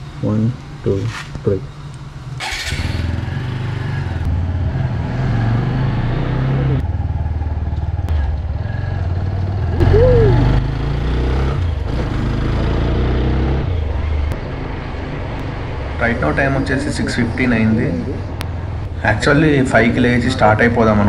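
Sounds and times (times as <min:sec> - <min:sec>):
motorcycle engine riding off: 0:02.4 - 0:13.9.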